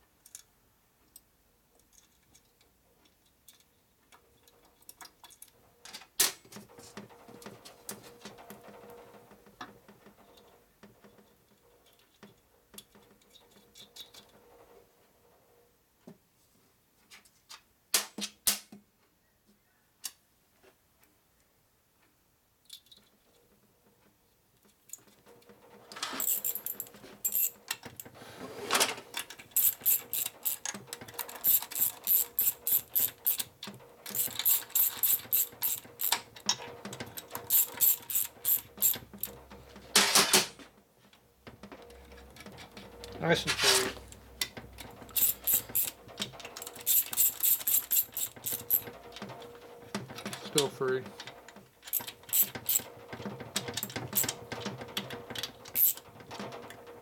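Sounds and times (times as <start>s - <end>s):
ratchet wrench clicking: 26.2s - 27.5s, 29.5s - 30.7s, 31.3s - 33.5s, 34.1s - 36.2s, 37.5s - 39.3s, 45.1s - 46.0s, 46.6s - 48.8s, 51.9s - 52.8s, 55.8s - 56.0s.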